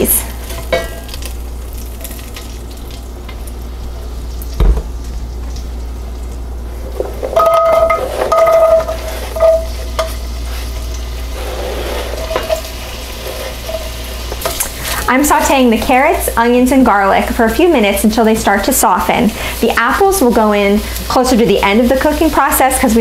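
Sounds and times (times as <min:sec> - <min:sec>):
butter and oil sizzling: 0:00.0 - 0:23.0
thump: 0:04.6 - 0:04.9
squeaky scrapes on cutting board: 0:11.4 - 0:12.5.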